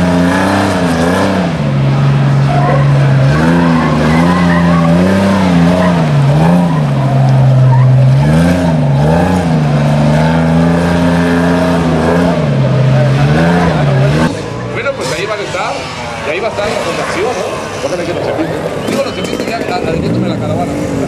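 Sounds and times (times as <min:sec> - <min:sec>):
truck engine revving: 0:00.0 - 0:21.0.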